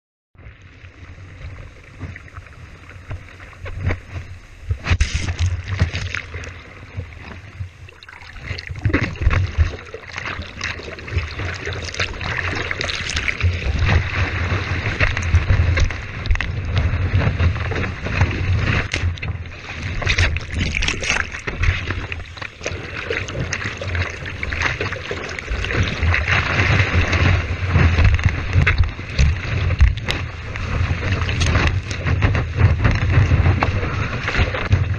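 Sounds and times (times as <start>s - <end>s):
wind buffeting camera: 1.2s - 34.9s.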